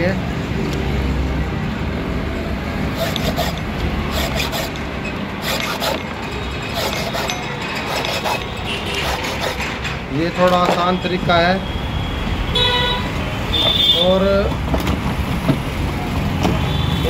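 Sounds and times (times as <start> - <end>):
low traffic rumble: 0.0 - 17.0
file scraping metal: 2.9 - 11.0.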